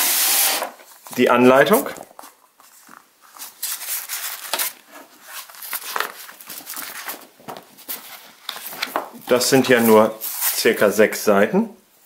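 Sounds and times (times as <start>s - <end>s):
paper rustling: 0.8s - 10.8s.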